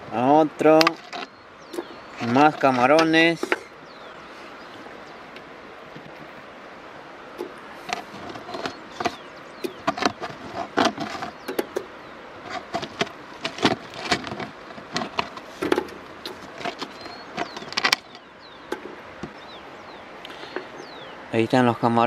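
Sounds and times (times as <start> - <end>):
steady background hiss: 0.0 - 22.0
prawns clicking against plastic: 12.5 - 19.4.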